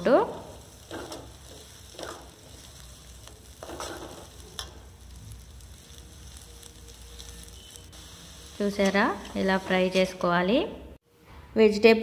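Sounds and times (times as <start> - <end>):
vegetables sizzling in hot oil: 0.0 - 10.4
metal spatula scraping pan: 3.5 - 4.4.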